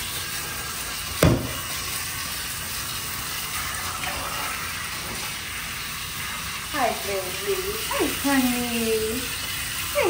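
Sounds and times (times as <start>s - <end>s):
shower head spraying water: 0.0s - 10.0s
sharp knock: 1.2s - 1.6s.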